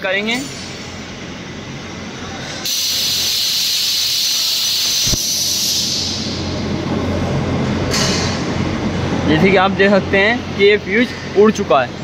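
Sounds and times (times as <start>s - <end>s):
steady high hiss: 2.6s - 6.5s.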